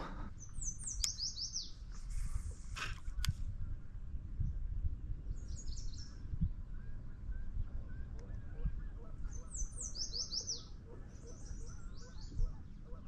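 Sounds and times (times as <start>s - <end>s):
songbird singing falling notes: 0.3s - 1.8s.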